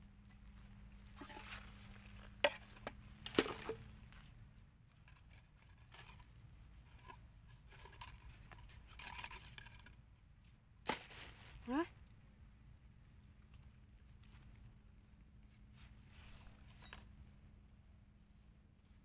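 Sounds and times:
rustling dry leaves and plastic: 0.2 - 12.2.

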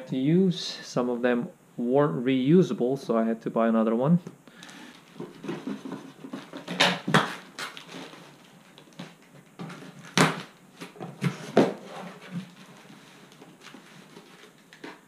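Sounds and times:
packing tape pulled off: 4.6 - 15.0
cardboard flaps crackling: 4.8 - 15.0.

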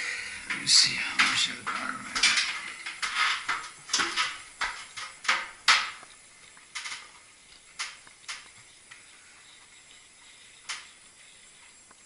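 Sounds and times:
sharp clicks and clunks of handling: 0.4 - 9.0.

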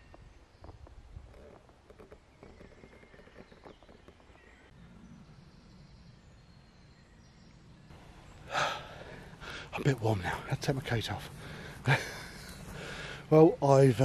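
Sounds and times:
faint outdoor background: 0.0 - 14.0.

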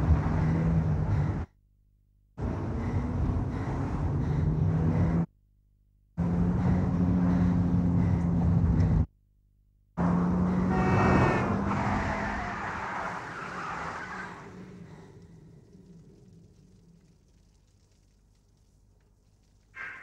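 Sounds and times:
road traffic hum: 0.0 - 1.5, 2.4 - 5.3, 6.2 - 9.1, 10.0 - 17.1.

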